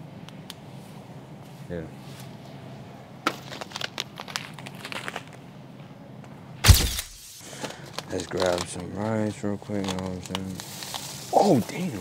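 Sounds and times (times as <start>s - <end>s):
loud thump: 6.6s - 7.3s.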